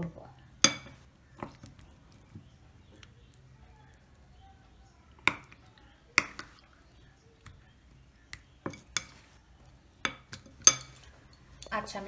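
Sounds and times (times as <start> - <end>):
spoon clinking against ceramic bowl: 0.6 - 1.5, 10.0 - 11.8.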